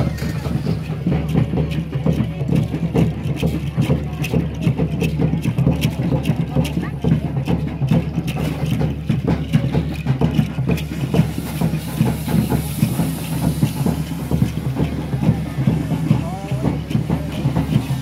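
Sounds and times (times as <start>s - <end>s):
fireworks hissing and crackling: 0.0s - 3.6s, 8.4s - 18.0s.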